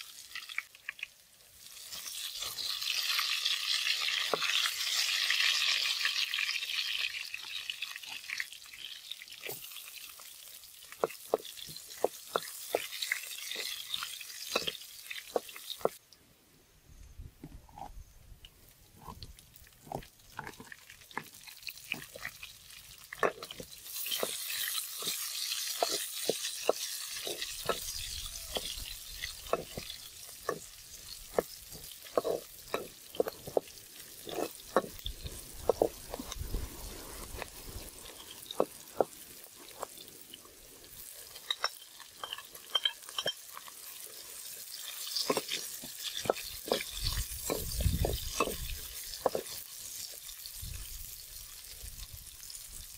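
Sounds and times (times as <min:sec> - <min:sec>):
hot oil sizzling: 0:00.0 - 0:16.0, 0:18.9 - 0:52.9
metal spatula scraping a wok: 0:23.2 - 0:38.8.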